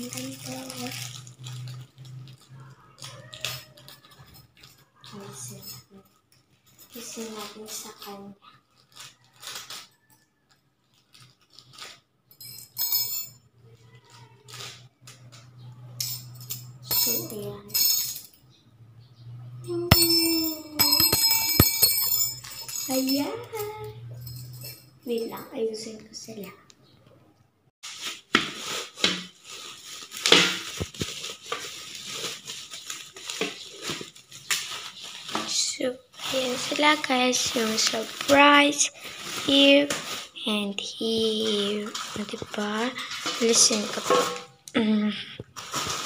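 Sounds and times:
wrapping crinkling: 0:00.0 - 0:05.6, 0:06.5 - 0:12.4, 0:13.8 - 0:15.4, 0:27.8 - 0:44.6, 0:45.5 - 0:46.0
bright clinking jingle: 0:12.4 - 0:13.4, 0:16.0 - 0:18.5, 0:19.7 - 0:25.5.

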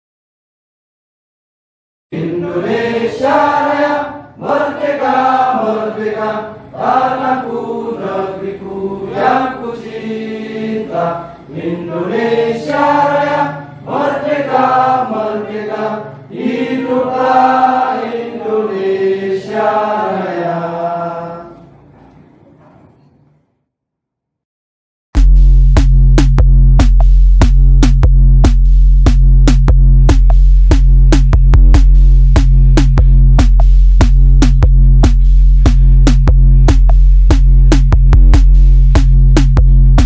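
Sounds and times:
group singing in unison: 0:02.1 - 0:21.7.

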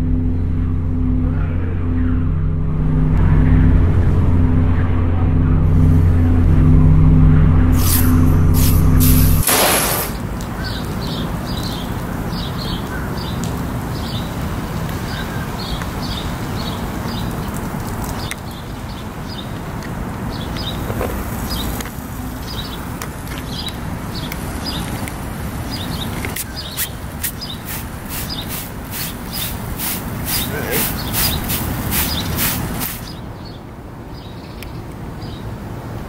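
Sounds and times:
low background noise: 0:00.0 - 0:36.0
spray bottle spritzing: 0:07.8 - 0:10.3, 0:26.4 - 0:33.1
small bird chirping: 0:25.7 - 0:33.6.

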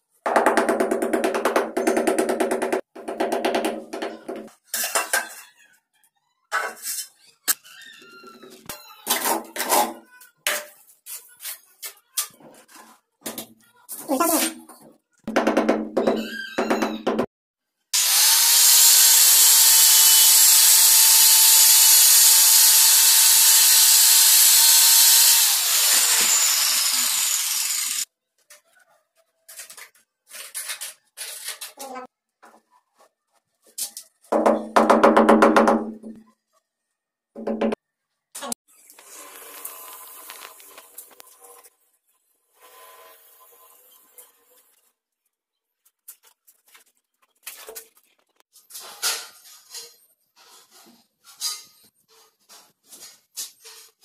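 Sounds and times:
tile cutter grinding hiss: 0:18.0 - 0:28.0.

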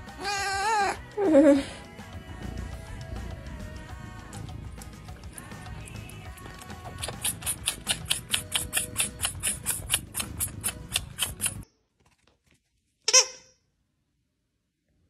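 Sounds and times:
rapid sharp clicks: 0:04.7 - 0:11.7
rubber squeaky toy squeak: 0:13.1 - 0:13.6.

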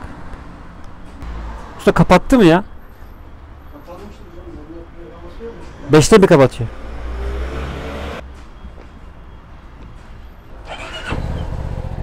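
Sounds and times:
motorcycle engine idling: 0:10.7 - 0:12.0.

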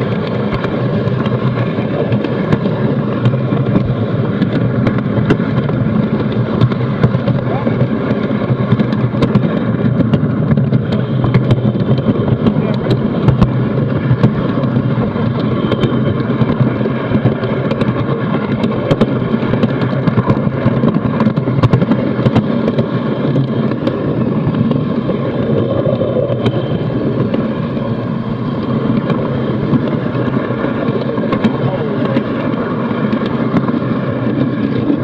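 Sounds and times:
model train rumbling on track: 0:00.0 - 0:35.0.

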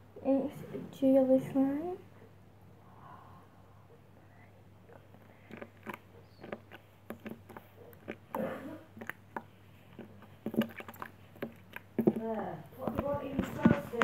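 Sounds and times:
slime squelching in hands: 0:04.8 - 0:14.0.

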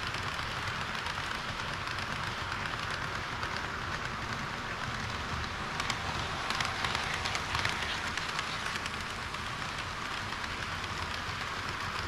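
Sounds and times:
model train wheels rattling: 0:00.0 - 0:12.0
wheels clicking over rail joints: 0:00.0 - 0:12.0.

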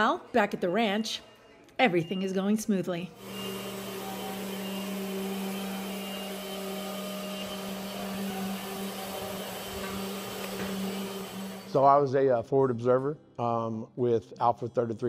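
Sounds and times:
machine humming: 0:03.2 - 0:12.1.

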